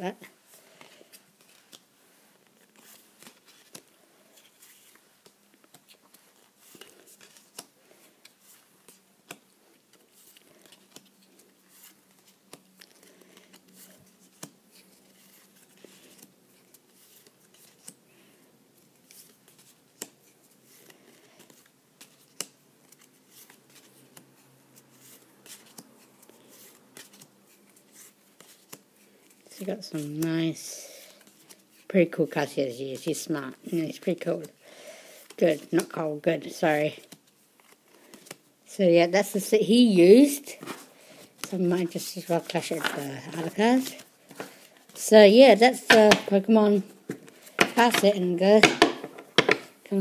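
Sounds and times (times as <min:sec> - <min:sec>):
cards clicking and sliding: 0:02.5 - 0:18.0, 0:19.0 - 0:30.2, 0:45.8 - 0:46.4.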